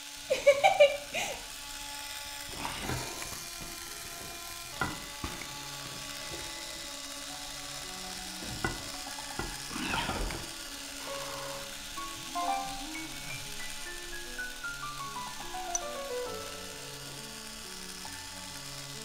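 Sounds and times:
electric corkscrew motor whirring: 0:00.0 - 0:19.0
sharp clicks: 0:15.1 - 0:16.4.

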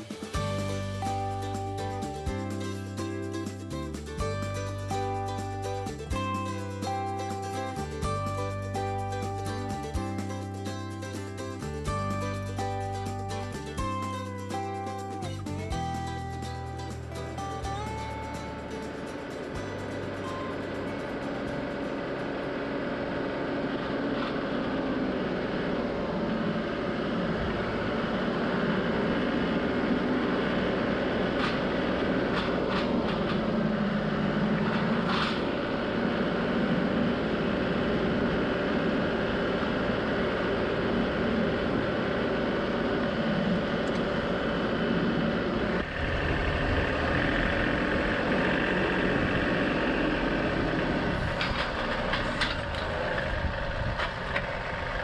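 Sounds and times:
tractor diesel engine running: 0:00.0 - 0:55.0
front loader clanks: 0:30.4 - 0:36.5, 0:45.8 - 0:55.0.

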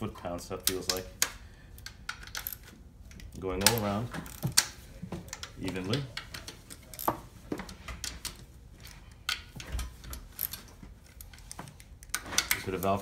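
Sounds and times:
socket ratchet clicking: 0:00.6 - 0:04.7.

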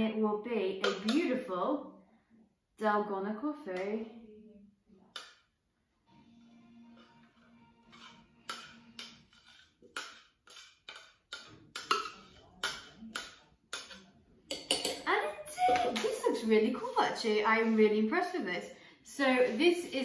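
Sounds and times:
woman's voice: 0:00.0 - 0:01.9, 0:02.8 - 0:04.4, 0:15.0 - 0:20.0
spoon tapping a plastic beaker: 0:09.9 - 0:15.1.

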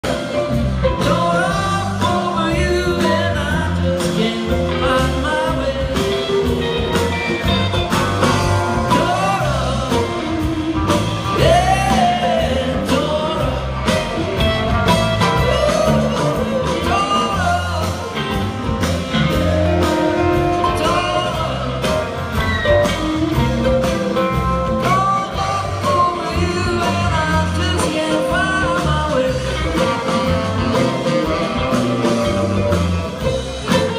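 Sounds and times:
live rock band playing: 0:00.0 - 0:33.9.

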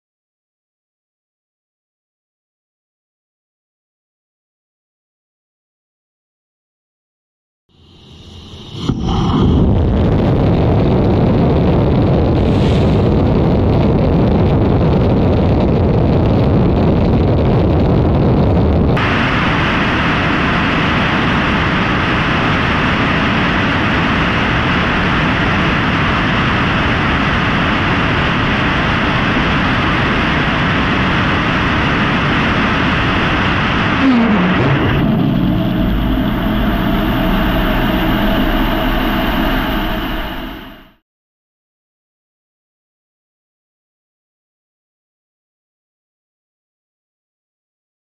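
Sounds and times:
rocket engine roaring: 0:07.8 - 0:41.0.

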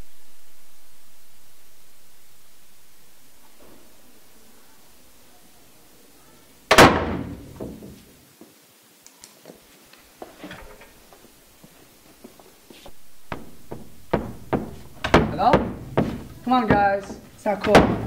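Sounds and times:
door slamming: 0:06.7 - 0:08.0, 0:13.4 - 0:18.0
soft rustling: 0:09.3 - 0:18.0
light footsteps: 0:09.4 - 0:18.0.

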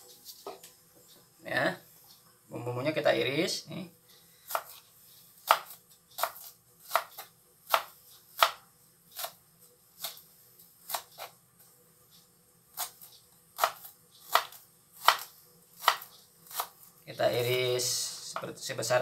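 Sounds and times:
knife chopping on cutting board: 0:04.5 - 0:04.8, 0:05.4 - 0:08.6, 0:12.8 - 0:16.8.

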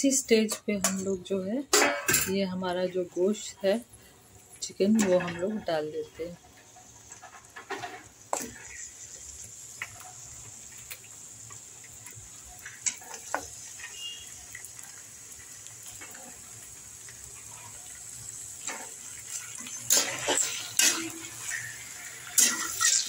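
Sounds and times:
chicken sizzling in hot oil: 0:02.6 - 0:23.0.

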